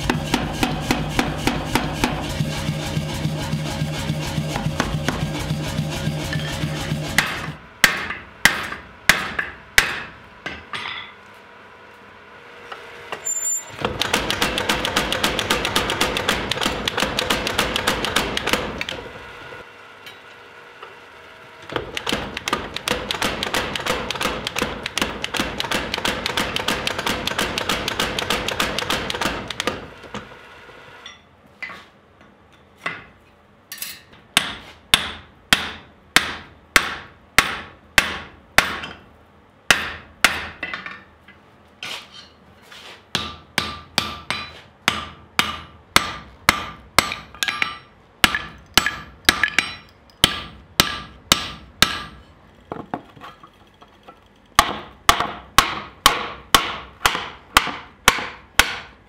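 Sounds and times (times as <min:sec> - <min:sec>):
power hammer blows: 0:00.0 - 0:10.2
hammer striking hot steel on anvil: 0:00.0 - 0:11.2, 0:33.7 - 0:39.0, 0:39.7 - 0:41.1, 0:43.1 - 0:52.4, 0:54.6 - 0:59.0.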